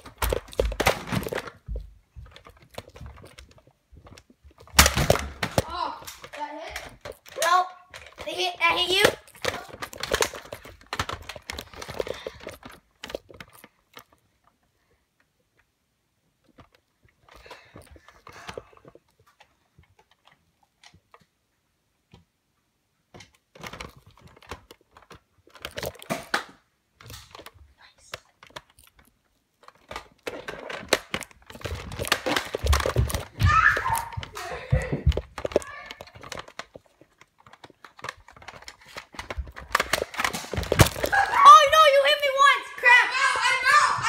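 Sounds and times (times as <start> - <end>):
phone handling clicks and rustling: 0.0 - 14.5, 23.2 - 27.6, 28.2 - 34.4, 35.0 - 41.3.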